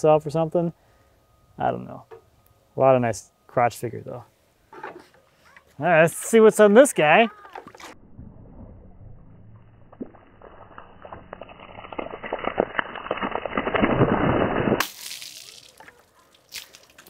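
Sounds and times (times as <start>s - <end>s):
water splashing on wood: 6.2s - 8.0s, 9.8s - 17.0s.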